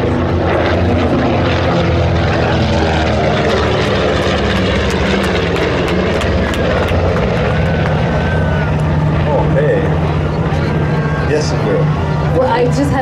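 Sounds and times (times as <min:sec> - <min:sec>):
propeller plane drone overhead: 0:00.0 - 0:13.0.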